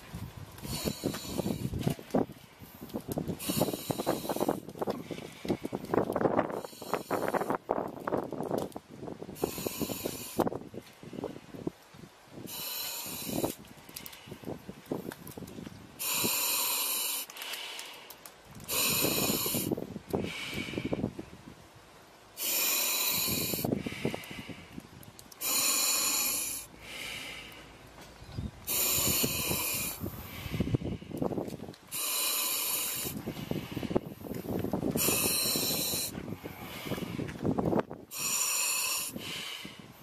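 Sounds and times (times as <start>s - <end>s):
regulator air hiss on inhale: 0.6s - 7.7s, 9.3s - 10.6s, 12.4s - 14.6s, 16.0s - 21.1s, 22.4s - 24.8s, 25.4s - 27.8s, 28.6s - 40.0s.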